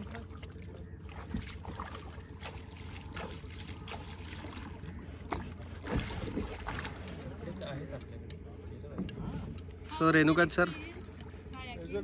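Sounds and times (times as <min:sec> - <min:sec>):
shallow water splashing: 0:00.0 - 0:08.0.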